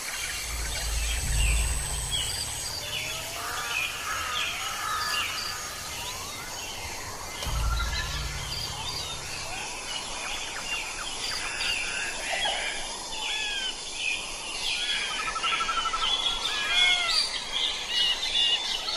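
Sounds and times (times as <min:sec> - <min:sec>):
steady hiss: 0:00.0 - 0:10.3
low rumble: 0:00.0 - 0:11.1.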